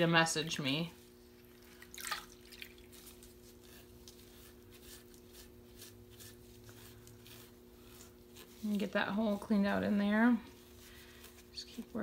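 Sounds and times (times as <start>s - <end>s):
steady low hum: 0.0s - 12.0s
soft water drips: 1.3s - 3.1s.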